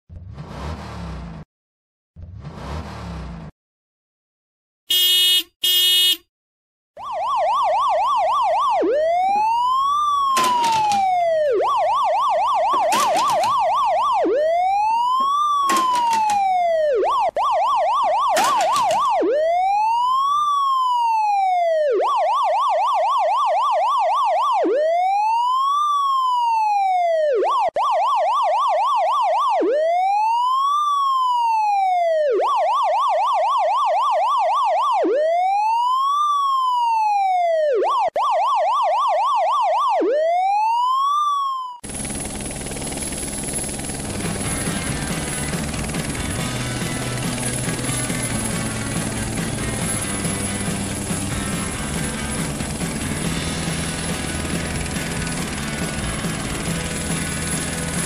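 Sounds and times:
police siren wail and yelp: 7.0 - 41.8
music: 44.2 - 57.0.

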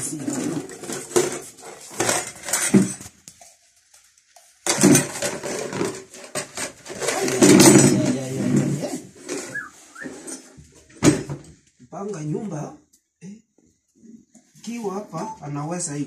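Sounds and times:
pots and household items clattering: 0.0 - 3.2, 4.6 - 11.6.

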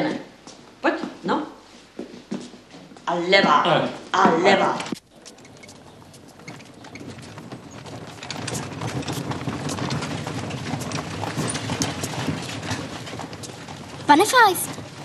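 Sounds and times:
horse hooves clip-clopping on stone: 4.9 - 15.0
wheels rolling over stones: 4.9 - 15.0.

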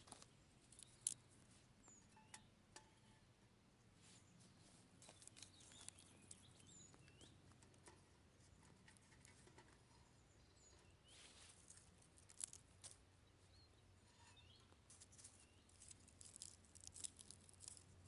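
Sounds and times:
twigs snapping: 0.0 - 1.2, 5.0 - 6.7, 11.7 - 13.0, 15.7 - 18.0
bird chirps: 0.8 - 3.2, 4.1 - 7.4, 9.9 - 11.4, 13.2 - 15.9.

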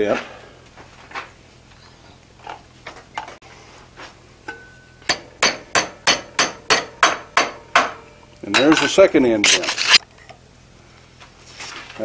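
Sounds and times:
hammer striking hot iron: 4.5 - 9.0.

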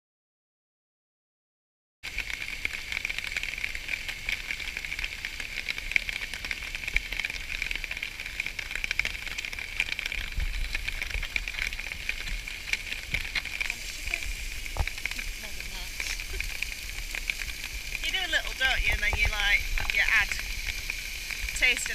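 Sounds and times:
food sizzling in a frying pan: 2.1 - 21.9
low rumble: 6.8 - 21.9.

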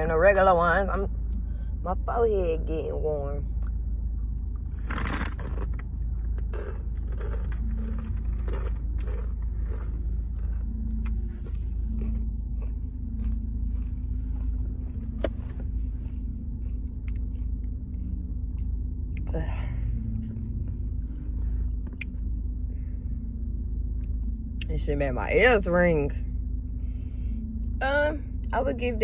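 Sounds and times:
low rumble inside car: 0.0 - 29.0
crunchy chips being chewed: 4.7 - 14.6.

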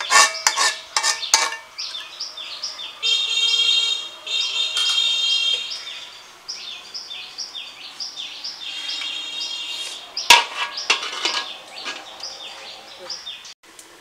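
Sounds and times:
metal lid clanking on pan: 0.0 - 2.0, 10.3 - 12.1
birds chirping: 0.0 - 13.6.

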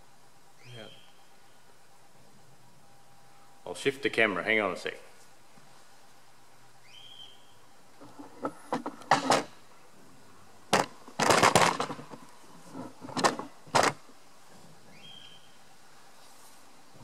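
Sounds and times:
handling clicks and clunks: 8.0 - 9.6, 10.7 - 14.2.

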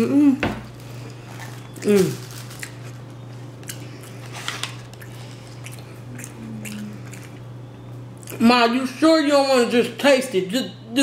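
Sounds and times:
low hum: 0.0 - 9.0
person chewing: 0.8 - 8.5.

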